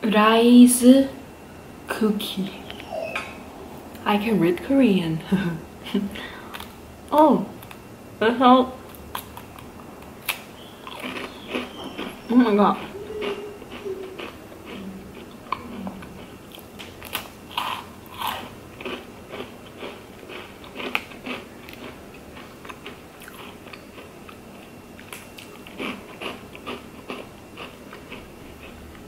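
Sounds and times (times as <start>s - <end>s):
crunching and chewing cookie: 8.8s - 29.0s.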